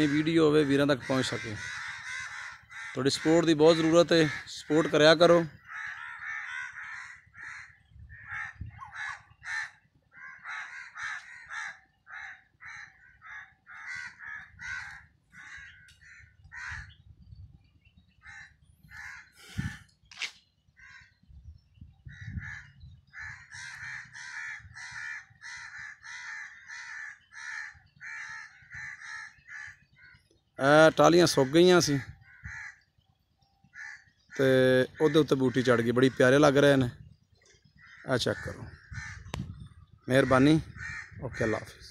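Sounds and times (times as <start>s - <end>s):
crows cawing: 0.0s - 17.0s, 18.2s - 20.0s, 20.7s - 21.3s, 22.0s - 41.9s.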